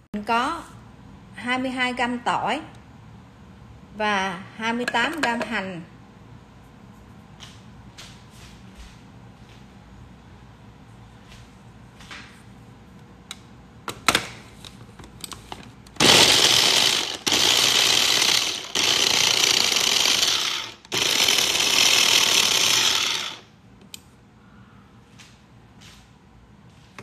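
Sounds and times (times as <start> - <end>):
food chopper grinding: 16.0 - 23.5.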